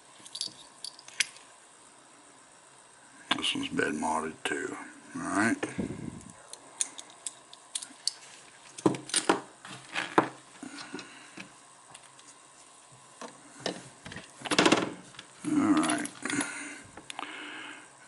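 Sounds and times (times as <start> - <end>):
metal parts clicking and tapping: 0.2 - 1.4, 15.7 - 16.5.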